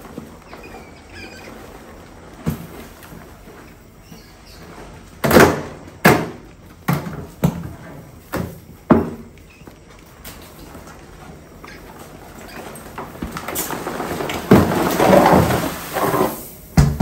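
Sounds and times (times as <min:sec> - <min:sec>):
mice squeaking: 0:00.4 - 0:02.0, 0:09.4 - 0:09.8.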